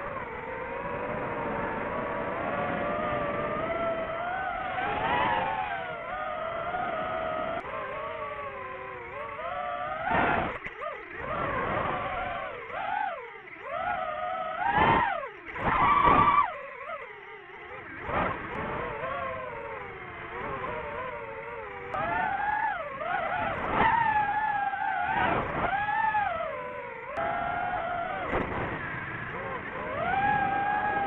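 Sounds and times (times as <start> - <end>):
drone propellers whining: 0.0 - 31.0.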